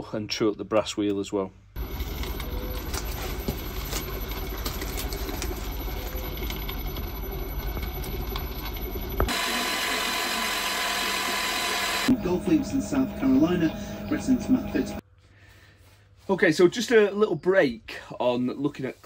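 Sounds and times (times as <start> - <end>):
metal lathe rumbling: 1.8 - 15.0
milling machine whine: 1.8 - 15.0.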